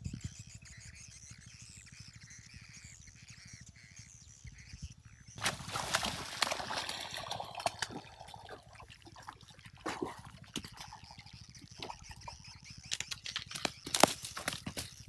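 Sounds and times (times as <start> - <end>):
fish splashing in water: 5.4 - 12.4
sharp knocks and rustles: 12.8 - 15.0.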